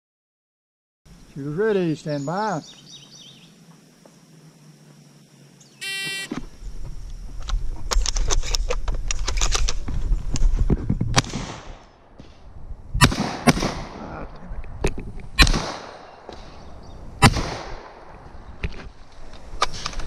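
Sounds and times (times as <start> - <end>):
shot timer beep: 5.8 - 6.3
handling noise with clicks: 7.0 - 10.8, 18.1 - 20.0
shotgun blasts: 11.1 - 11.8, 13.0 - 14.1, 15.4 - 16.5, 17.2 - 18.0.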